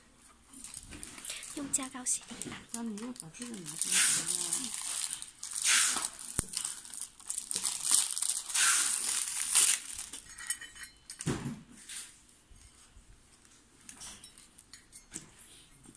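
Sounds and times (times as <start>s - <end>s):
plastic packing film crinkling: 0.5s - 10.4s.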